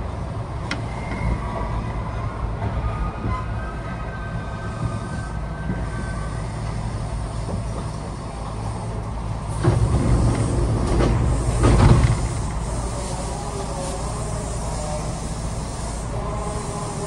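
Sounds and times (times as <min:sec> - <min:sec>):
train wheels rumbling on rail: 0:00.0 - 0:17.0
wheels clattering over track joints: 0:09.5 - 0:12.6.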